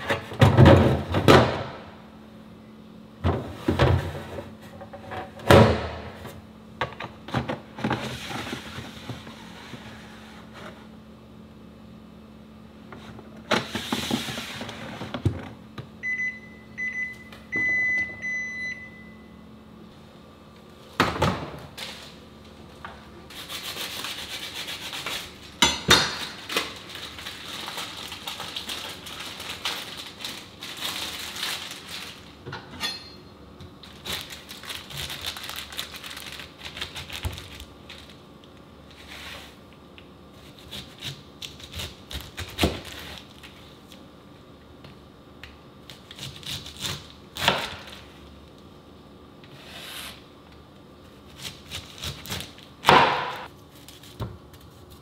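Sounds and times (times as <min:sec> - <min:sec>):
refrigerator alarm beeping: 0:16.0 - 0:19.5
plastic wrap rustling: 0:26.2 - 0:32.4, 0:33.8 - 0:38.2.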